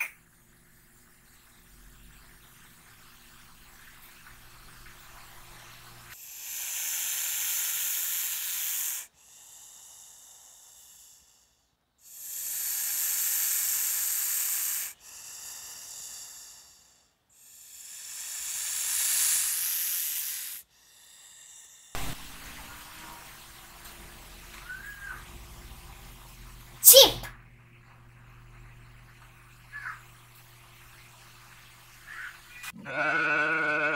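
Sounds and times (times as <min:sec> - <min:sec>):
snake hissing: 0:06.1 - 0:23.3.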